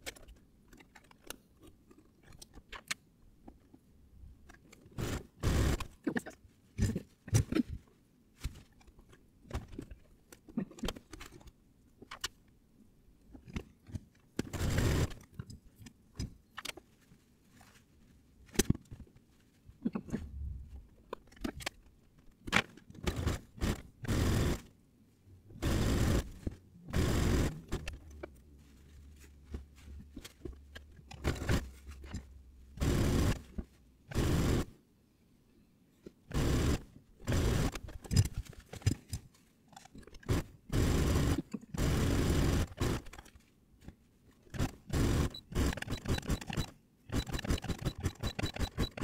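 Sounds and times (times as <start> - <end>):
clicks and scrapes: 0.0 - 12.4, 13.3 - 24.6, 25.6 - 34.6, 36.0 - 40.5
low steady hum: 15.4 - 22.3
fabric rustling: 28.2 - 32.3.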